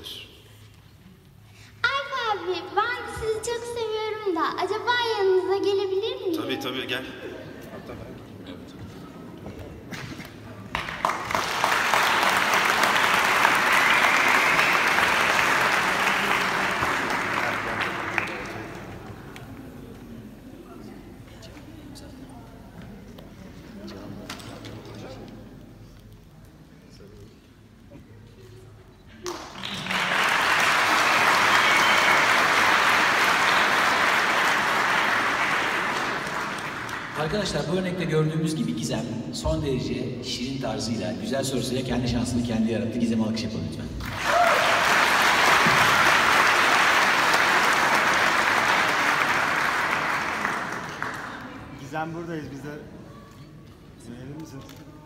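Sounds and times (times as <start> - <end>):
audience applauding: 10.7 - 19.5, 29.2 - 37.5, 44.0 - 51.7.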